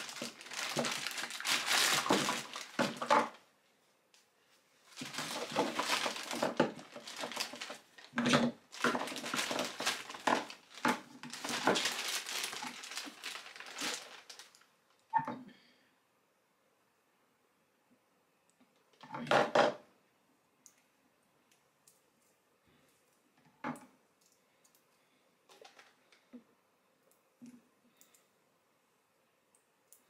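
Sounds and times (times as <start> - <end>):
plastic bags crinkling: 0.0 - 3.4, 4.9 - 14.7.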